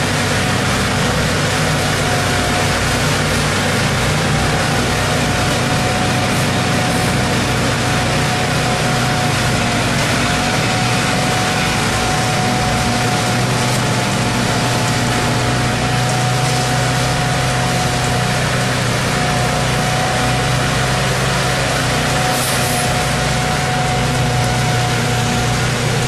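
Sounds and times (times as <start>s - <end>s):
heavy engines low drone: 0.0s - 26.0s.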